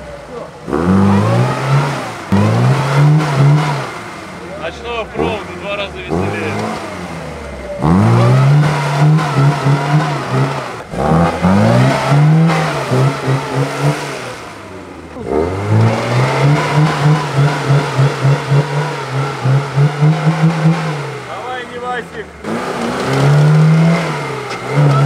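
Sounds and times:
car engine revving: 0:00.0 - 0:25.0.

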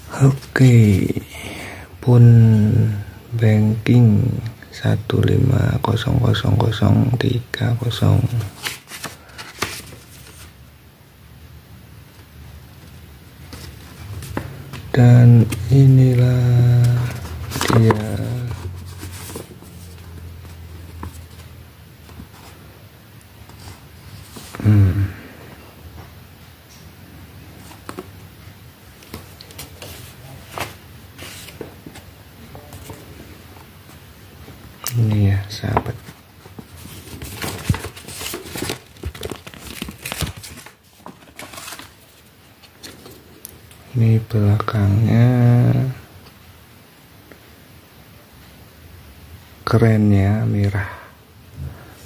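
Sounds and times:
paper rustling: 0:07.9 - 0:10.6, 0:13.4 - 0:22.7, 0:23.4 - 0:24.8, 0:29.0 - 0:34.0, 0:35.6 - 0:43.2
packaging crinkling: 0:36.6 - 0:43.2.

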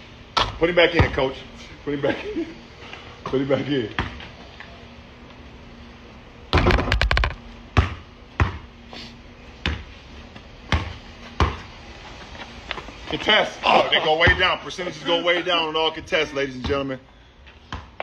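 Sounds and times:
basketball bouncing on pavement: 0:00.4 - 0:01.2, 0:03.9 - 0:04.3, 0:06.5 - 0:08.7, 0:09.6 - 0:11.7, 0:14.2 - 0:14.5, 0:17.6 - 0:18.0.

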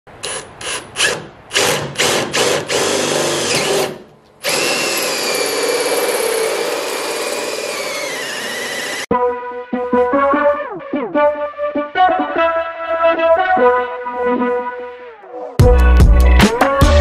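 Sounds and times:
power drill cutting with hole saw: 0:00.2 - 0:09.1.

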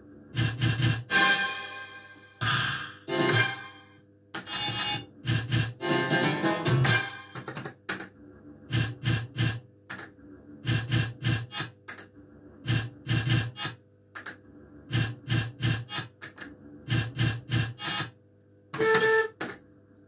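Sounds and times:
faint machine hum: 0:00.0 - 0:20.0
electronic beeps: 0:04.5 - 0:05.1.

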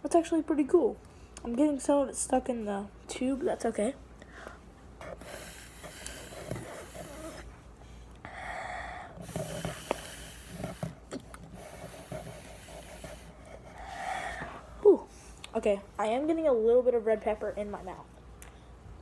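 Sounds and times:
airy sucking through a straw: 0:05.0 - 0:07.5, 0:09.0 - 0:14.6.

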